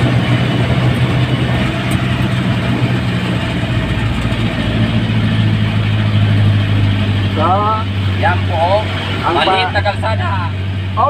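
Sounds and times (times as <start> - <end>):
road noise: 0.0 - 11.0
vehicle engine running: 0.0 - 11.0.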